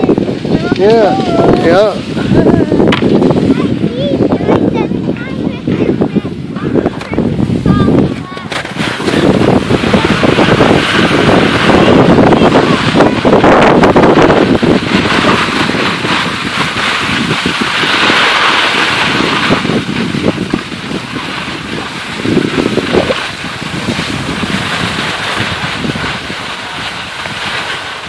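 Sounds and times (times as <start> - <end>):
skis sliding over snow: 0.0 - 28.0
wind buffeting microphone: 0.0 - 28.0.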